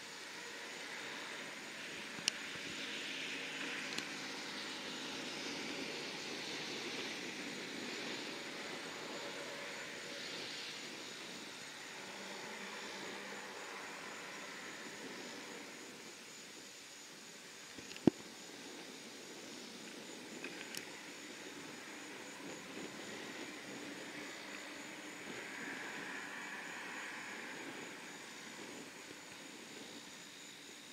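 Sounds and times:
turboprop engines running: 0:01.4 - 0:17.3.

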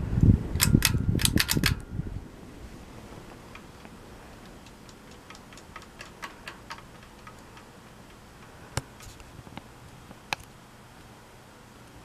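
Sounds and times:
ceiling fan humming: 0:00.0 - 0:12.0
light clicking and ticking: 0:03.3 - 0:11.1.

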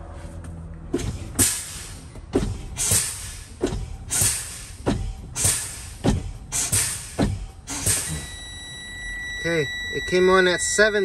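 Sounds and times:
air brake hisses: 0:01.4 - 0:02.1, 0:02.7 - 0:08.3.

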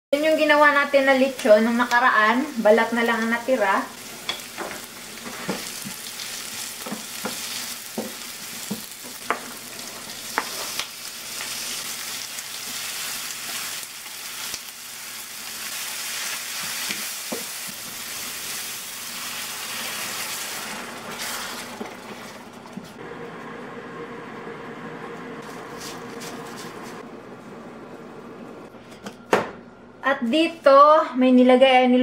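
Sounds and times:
onions and pork sizzling in oil: 0:00.2 - 0:23.2.

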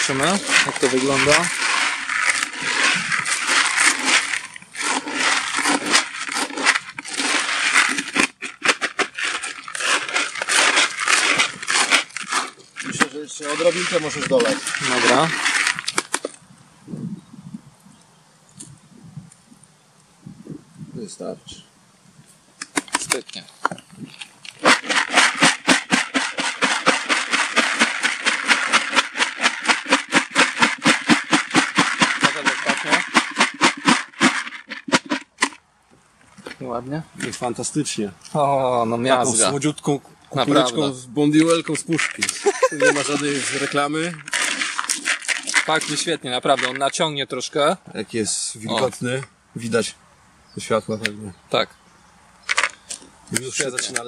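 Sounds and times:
spoon stirring pellets in bucket: 0:00.0 - 0:16.3, 0:24.5 - 0:35.6, 0:41.4 - 0:47.0.

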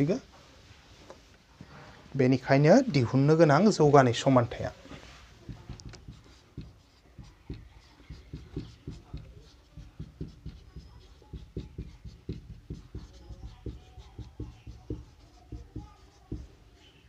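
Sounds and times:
marker pen writing on whiteboard: 0:05.0 - 0:17.0.

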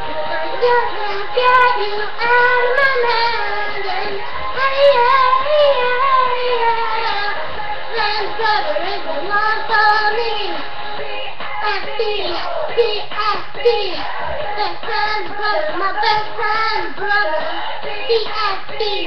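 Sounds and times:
girl singing a pop song: 0:00.0 - 0:19.0.

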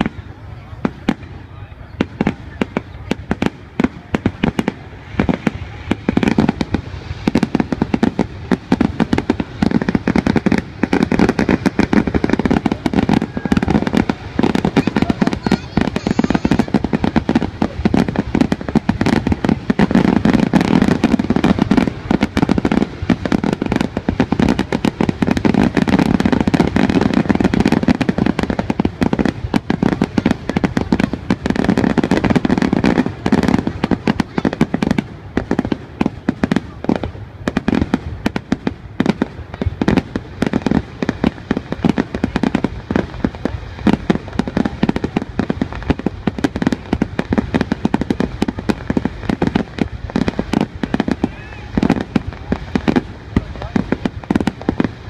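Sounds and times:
fireworks bangs and crackle: 0:00.0 - 0:55.0.

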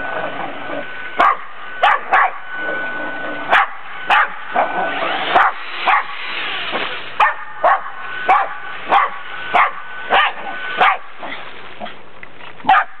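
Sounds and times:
dog barking: 0:01.2 - 0:02.4, 0:03.5 - 0:04.4, 0:05.3 - 0:06.1, 0:07.2 - 0:11.1, 0:12.7 - 0:13.0.

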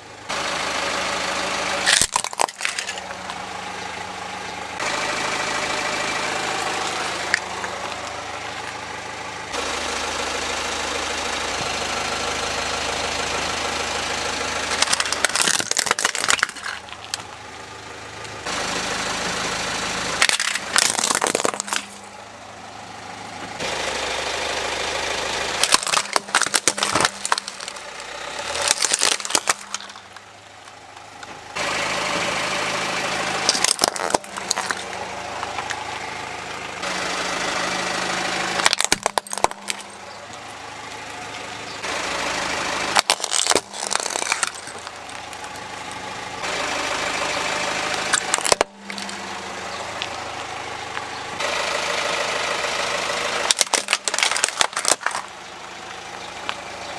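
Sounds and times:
car engine running: 0:00.0 - 0:56.9
plastic toys cracking under tyre: 0:01.8 - 0:03.4, 0:14.7 - 0:17.4, 0:20.2 - 0:22.1, 0:25.6 - 0:31.3, 0:33.4 - 0:35.8, 0:38.6 - 0:41.0, 0:42.9 - 0:46.1, 0:47.9 - 0:49.2, 0:53.4 - 0:55.4.

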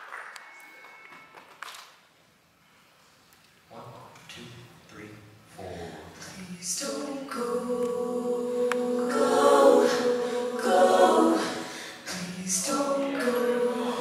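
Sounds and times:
a cappella group singing harmony: 0:05.6 - 0:14.0.

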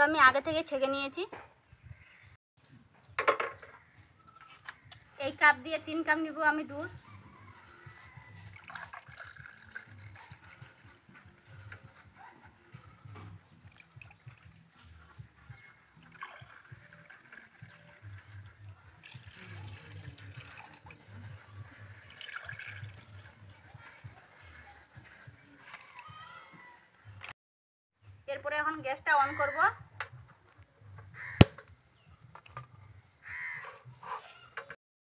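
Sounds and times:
milk trickling and splashing: 0:07.8 - 0:11.0, 0:13.5 - 0:21.0, 0:22.0 - 0:23.4.

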